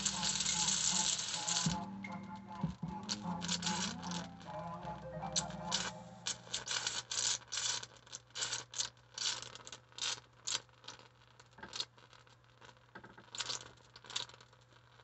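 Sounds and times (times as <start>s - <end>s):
electric arc crackling: 0.0s - 1.9s, 3.0s - 4.9s.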